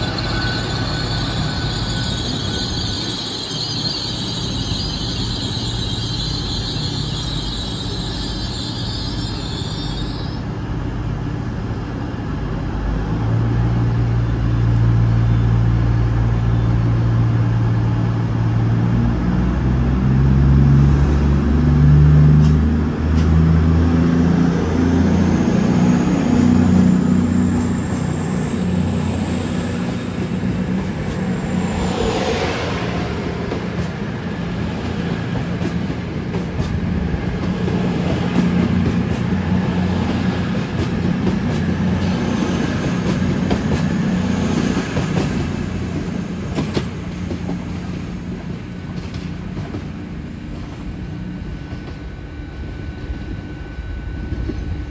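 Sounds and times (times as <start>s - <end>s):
high whine: 0.0s - 10.6s, 50.2s - 54.9s
diesel train engines working: 0.0s - 54.9s.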